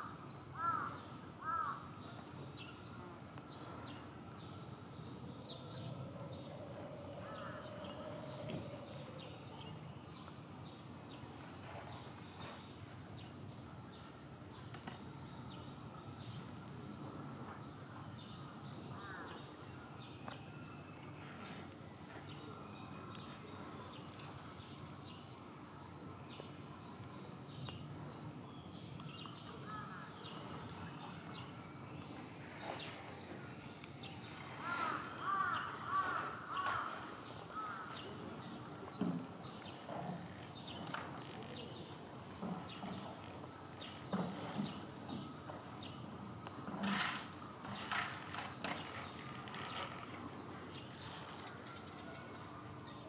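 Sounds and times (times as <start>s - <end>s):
birds calling: 0.0s - 1.8s, 29.2s - 51.6s.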